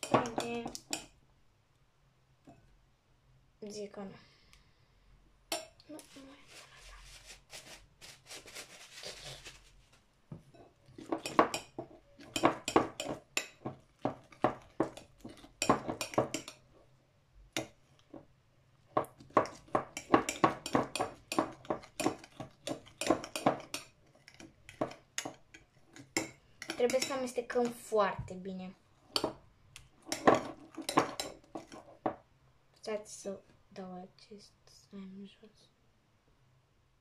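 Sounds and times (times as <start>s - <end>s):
spoon scraping ceramic bowl: 10.5s - 16.6s, 19.0s - 27.2s, 30.0s - 32.2s.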